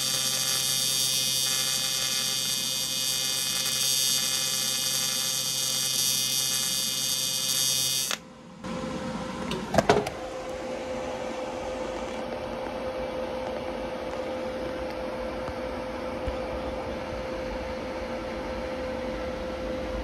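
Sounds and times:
welding arc buzzing: 0.0s - 8.2s
machine hum with held tone: 0.0s - 20.0s.

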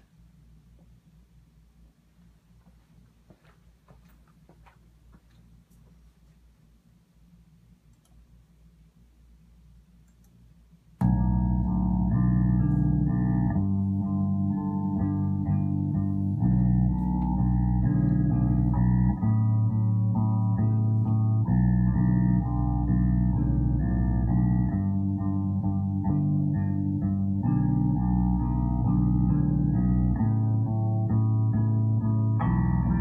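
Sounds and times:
faint room hiss: 0.0s - 33.0s
music with prominent bass line: 11.0s - 33.0s.

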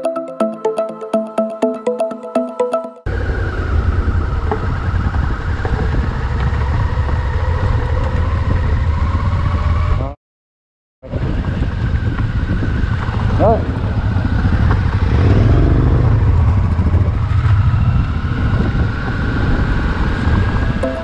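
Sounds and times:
electronic music: 0.0s - 3.1s
motorcycle engine running: 3.1s - 10.0s, 11.2s - 20.8s
wind and road noise: 3.1s - 10.2s, 11.0s - 21.0s.

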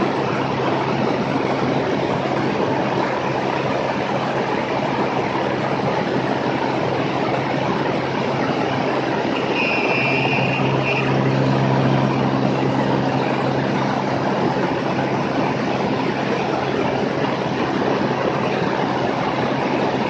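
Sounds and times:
aircraft engine and propeller droning: 0.0s - 20.0s
rushing air noise: 0.0s - 20.0s
brief high steady tone: 9.3s - 13.4s.

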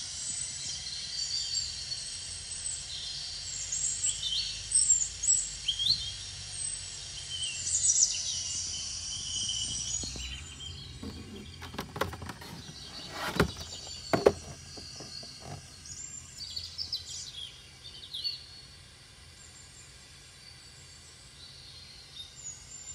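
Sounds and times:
birds chirping: 8.2s - 18.2s
toy box knocks and clicks: 11.0s - 15.7s.

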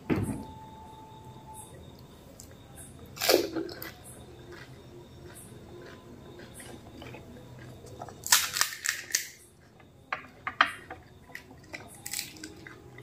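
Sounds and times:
crisp shells cracking: 8.1s - 9.4s, 11.7s - 12.8s.

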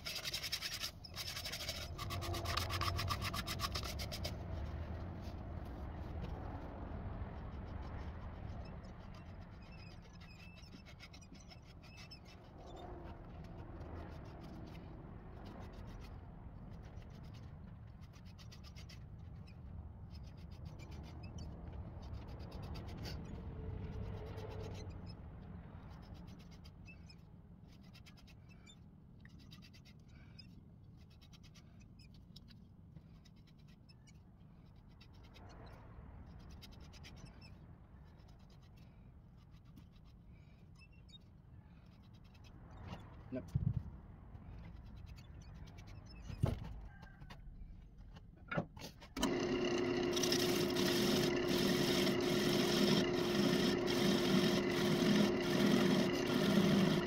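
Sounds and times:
pad rubbing on wood: 0.0s - 6.7s
lathe motor hum: 49.2s - 57.0s.

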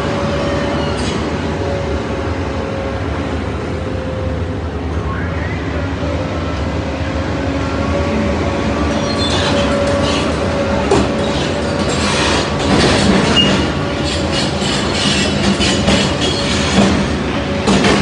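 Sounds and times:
metal squealing and clanking: 8.9s - 17.1s.

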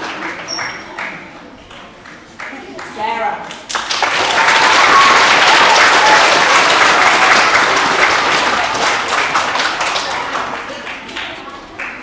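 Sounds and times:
audience applauding: 3.6s - 12.0s.

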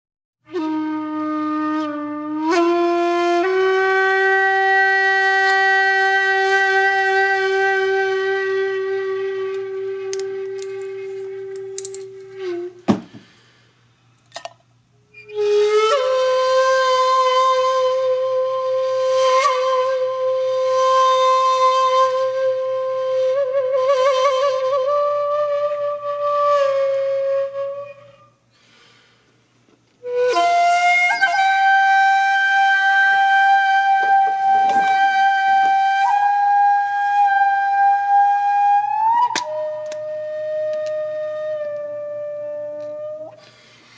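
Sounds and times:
wind instrument holding long notes: 0.5s - 12.9s, 15.1s - 28.5s, 30.0s - 43.9s
short knock: 12.9s - 13.3s.

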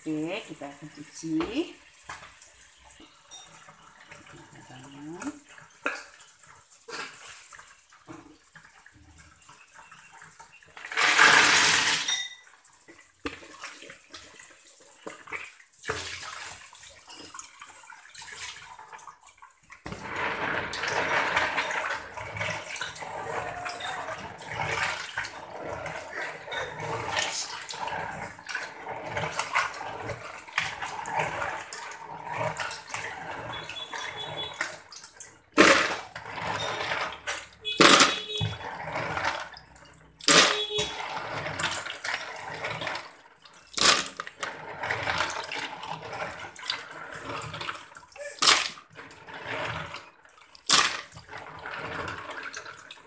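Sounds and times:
water sloshing: 12.7s - 53.0s.

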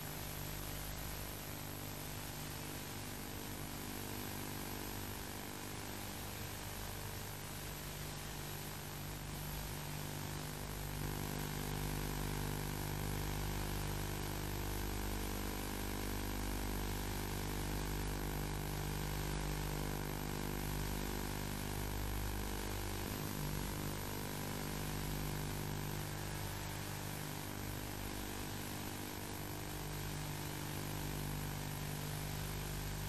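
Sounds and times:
low droning hum: 23.0s - 24.2s.

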